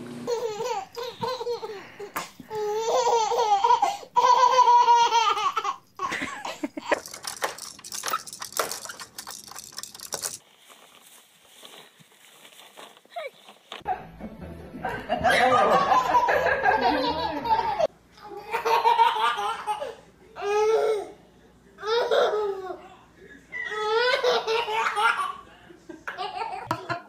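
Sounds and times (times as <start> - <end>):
baby laughing: 0.3 - 10.3, 15.6 - 20.0, 23.8 - 25.4.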